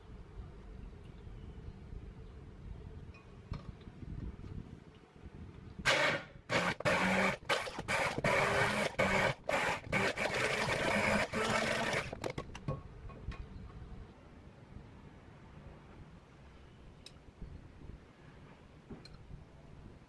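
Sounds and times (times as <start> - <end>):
immersion blender motor humming: 5.9 - 12.2.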